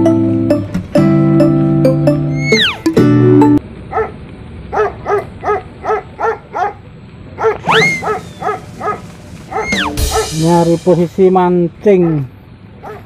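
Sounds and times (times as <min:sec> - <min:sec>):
sliding whistle-like tone: 0:02.3 - 0:02.9, 0:07.6 - 0:08.5, 0:09.6 - 0:10.0
small dog yapping: 0:02.4 - 0:02.9, 0:03.9 - 0:06.8, 0:07.4 - 0:10.4, 0:12.0 - 0:13.0.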